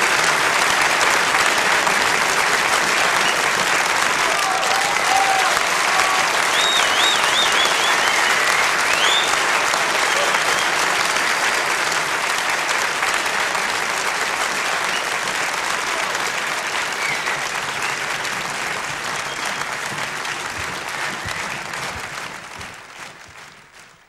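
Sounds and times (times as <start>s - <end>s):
audience applauding: 0.0s - 24.0s.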